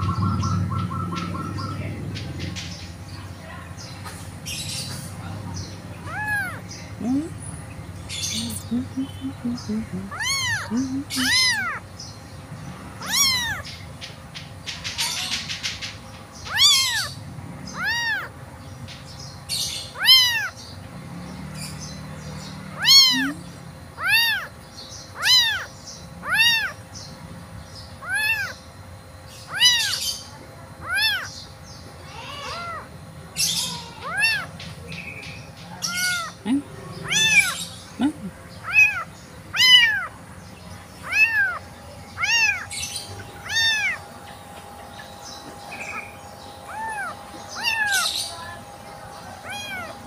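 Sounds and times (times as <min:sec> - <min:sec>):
kitten meowing: 0:06.1 - 0:07.3, 0:09.9 - 0:11.8, 0:13.0 - 0:13.7, 0:16.5 - 0:17.1, 0:17.8 - 0:18.3, 0:20.0 - 0:20.6, 0:22.8 - 0:24.5, 0:25.2 - 0:26.8, 0:28.0 - 0:28.6, 0:29.5 - 0:30.0, 0:30.8 - 0:31.3, 0:32.1 - 0:32.9, 0:33.6 - 0:34.5, 0:35.9 - 0:36.4, 0:37.0 - 0:37.6, 0:38.6 - 0:40.1, 0:41.0 - 0:41.6, 0:42.2 - 0:42.7, 0:43.4 - 0:44.0, 0:46.7 - 0:48.0, 0:49.4 - 0:50.0.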